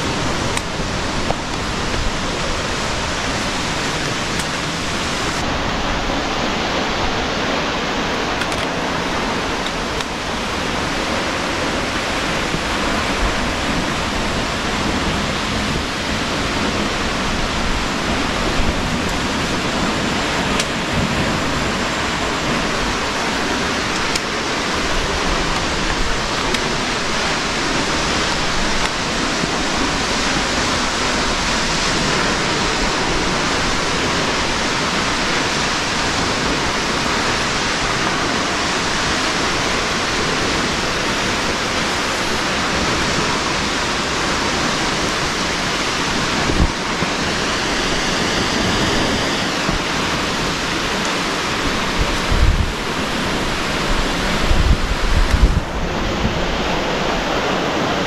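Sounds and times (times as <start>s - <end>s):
rushing water: 0.0s - 58.0s.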